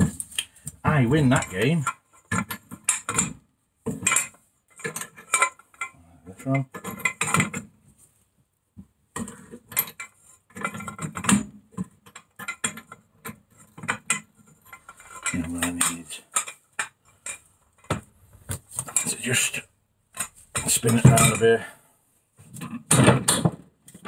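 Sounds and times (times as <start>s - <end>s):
metal clinks and knocks: 1.1s - 7.8s, 9.1s - 19.5s, 20.1s - 21.7s.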